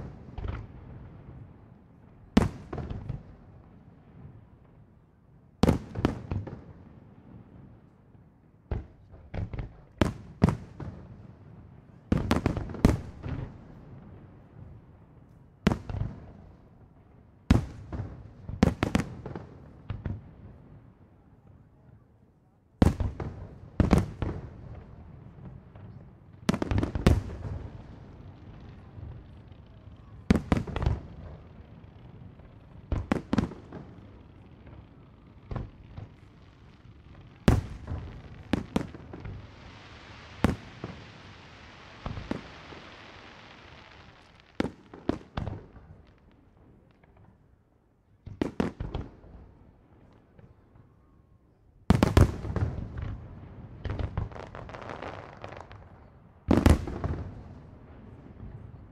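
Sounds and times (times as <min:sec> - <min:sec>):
fireworks booming: 0:22.8 - 0:47.3, 0:51.9 - 0:58.9
steady hiss: 0:36.4 - 0:44.6.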